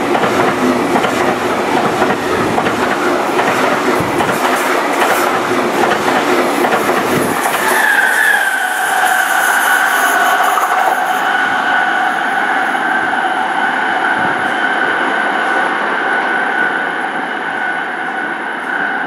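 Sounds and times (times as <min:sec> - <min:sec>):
train rolling rail noise: 0:00.0 - 0:19.0
locomotive high whine: 0:04.8 - 0:19.0.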